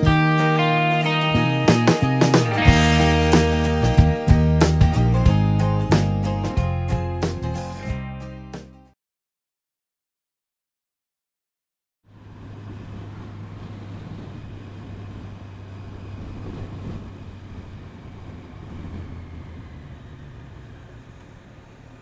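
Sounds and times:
road and wind noise: 0:00.0 - 0:07.8, 0:12.1 - 0:22.0
motorcycle engine hum: 0:12.1 - 0:22.0.

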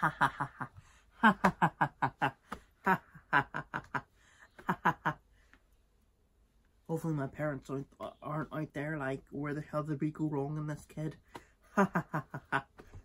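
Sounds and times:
man laughing: 0:00.0 - 0:05.2, 0:11.7 - 0:13.0.

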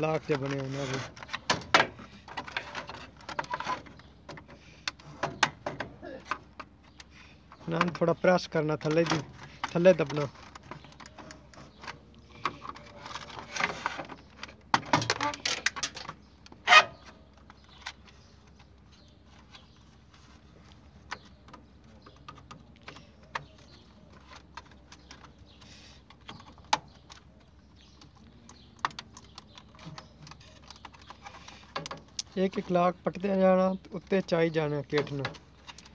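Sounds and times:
plastic catches clicking and snapping: 0:08.8 - 0:16.6, 0:27.9 - 0:32.6.

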